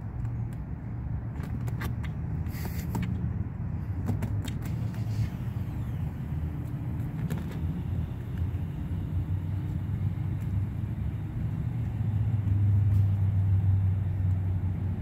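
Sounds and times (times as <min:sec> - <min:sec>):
steady low rumble: 0:00.0 - 0:15.0.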